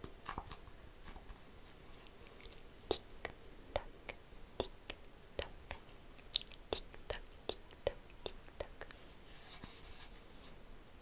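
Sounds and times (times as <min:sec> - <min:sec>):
wet mouth clicks and pops: 0:04.6 - 0:08.9.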